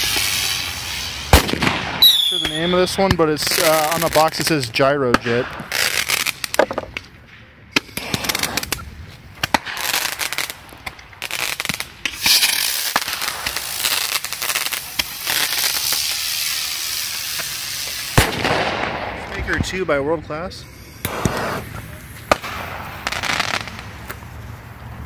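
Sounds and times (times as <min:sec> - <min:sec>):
firework bang: 0:00.0 - 0:04.2, 0:07.8 - 0:08.8, 0:17.1 - 0:24.3
firework rushing hiss: 0:00.0 - 0:06.9, 0:07.8 - 0:25.0
fuse crackling: 0:00.0 - 0:25.0.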